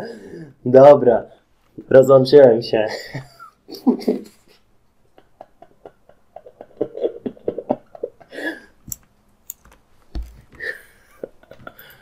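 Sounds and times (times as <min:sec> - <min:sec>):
man's stifled laughter: 0:03.0 - 0:08.7.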